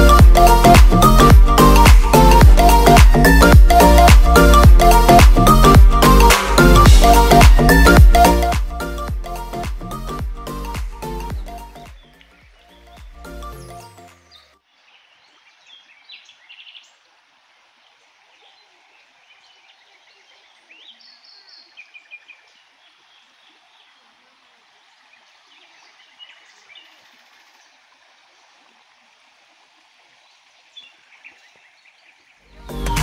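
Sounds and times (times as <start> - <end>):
background music: 0.0 - 14.4, 32.5 - 33.0
stream running: 0.0 - 33.0
small birds chirping: 18.4 - 24.2.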